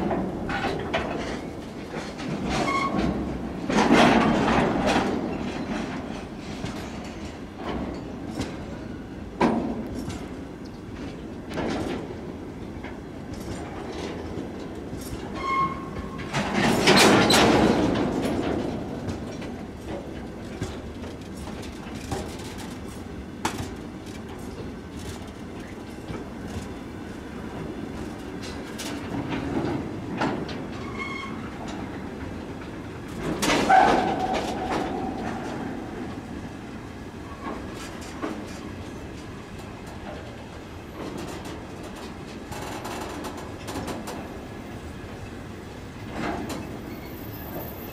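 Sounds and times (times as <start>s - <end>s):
train wheels clicking over rail joints: 0.0s - 47.9s
train wheel squeal: 2.6s - 3.1s, 15.0s - 16.4s, 30.8s - 31.5s, 33.6s - 35.6s, 46.5s - 47.9s.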